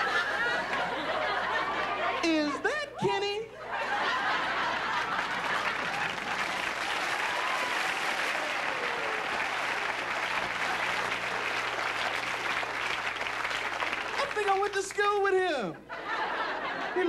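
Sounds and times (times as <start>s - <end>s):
audience applauding: 4.0s - 15.4s.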